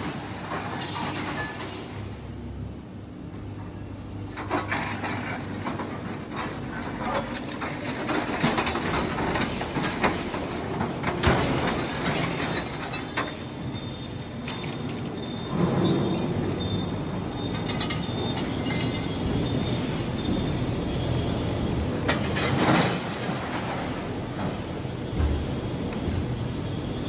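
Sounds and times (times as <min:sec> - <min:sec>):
scrap metal clanking and clattering: 0:00.0 - 0:01.9, 0:04.3 - 0:13.4, 0:22.0 - 0:25.6.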